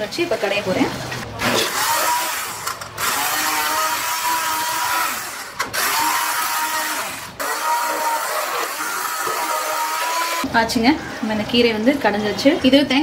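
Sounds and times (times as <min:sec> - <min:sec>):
hand blender whirring: 0:01.4 - 0:10.5.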